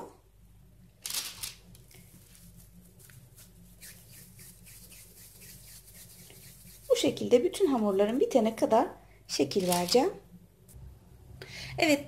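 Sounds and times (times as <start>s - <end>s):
low steady hum: 0.0s - 12.0s
paper rustling: 1.0s - 7.8s, 9.6s - 10.0s
hands rolling dough: 1.9s - 8.7s.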